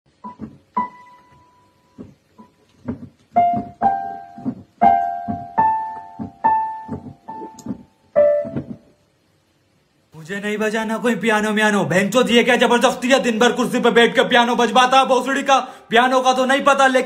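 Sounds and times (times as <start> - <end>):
piano notes played slowly: 0.1 - 9.1.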